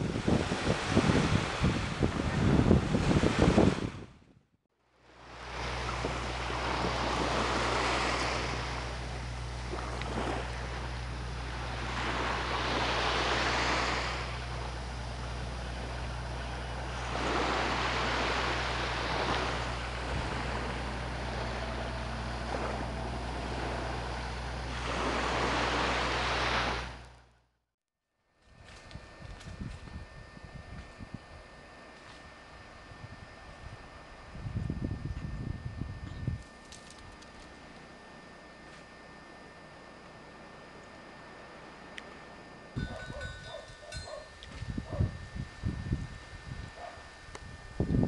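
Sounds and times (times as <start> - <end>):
small waves washing onto beach: 0.0 - 4.0, 5.0 - 27.1
steady low hum: 0.0 - 48.0.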